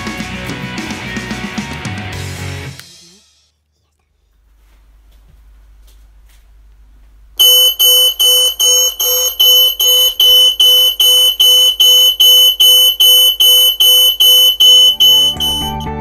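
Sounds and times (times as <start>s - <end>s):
rapid high-pitched alarm beeping: 7.4s - 16.0s.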